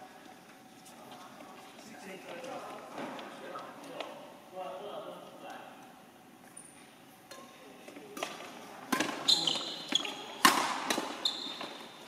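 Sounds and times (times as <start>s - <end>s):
rackets hitting shuttlecock: 8.2s - 11.9s
shoes squeaking on court floor: 8.9s - 12.0s.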